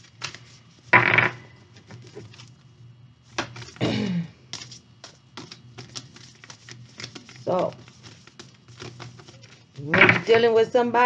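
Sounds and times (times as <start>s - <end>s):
cards brushing: 0.0s - 0.9s, 4.5s - 10.3s
cards clicking and tapping: 4.5s - 10.4s.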